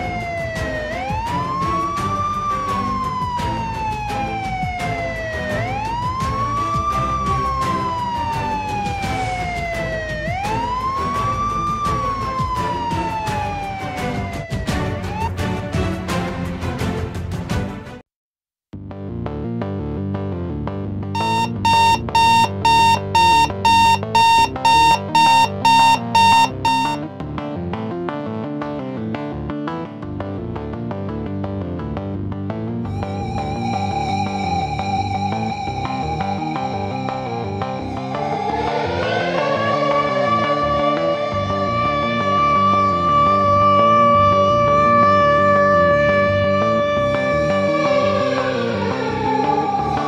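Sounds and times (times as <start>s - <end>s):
wailing siren: 0.0s - 15.4s, 21.2s - 27.0s, 38.1s - 50.0s
background music: 0.0s - 18.0s, 27.6s - 50.0s
high alarm beeps: 21.2s - 27.0s.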